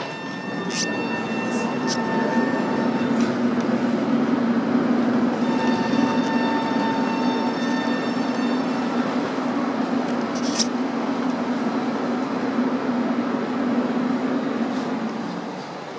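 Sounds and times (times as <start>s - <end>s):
electric whine: 0.0s - 10.9s
tram low rumble: 0.0s - 15.9s.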